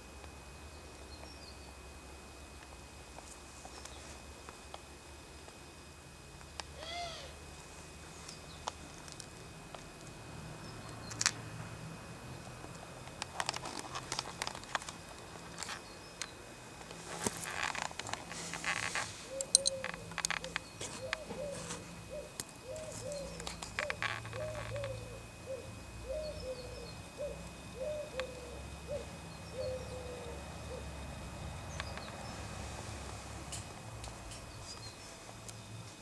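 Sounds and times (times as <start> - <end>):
bird hooting: 6.7 - 7.4, 19.2 - 31.0
rustling: 13.2 - 15.9, 16.8 - 22.0
scattered clicks: 19.4 - 21.2.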